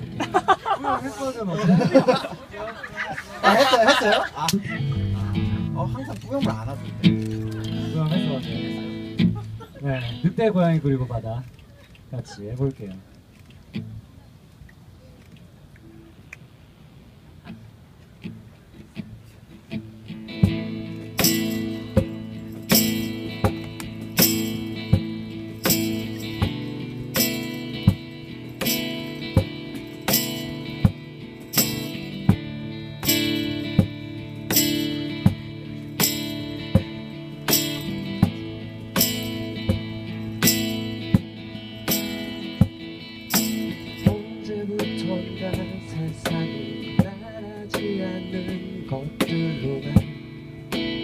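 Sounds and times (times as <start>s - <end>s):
strummed acoustic guitar chords: 0.0s - 0.8s, 4.6s - 10.6s, 17.5s - 51.0s
cajon beat: 4.4s - 10.2s, 17.5s - 51.0s.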